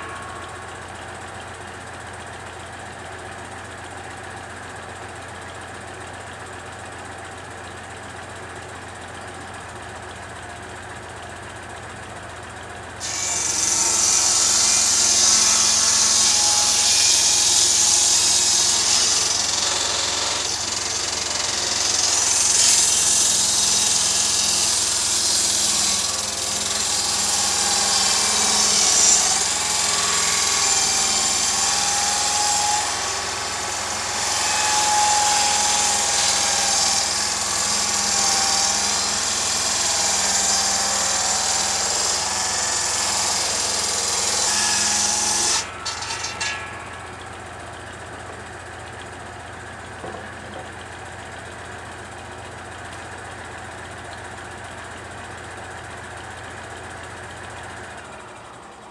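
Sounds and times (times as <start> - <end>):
circular saw hissing and whining: 0.0 - 3.1, 13.0 - 49.9
tractor engine idling: 0.0 - 13.1, 19.2 - 31.6, 45.7 - 58.9.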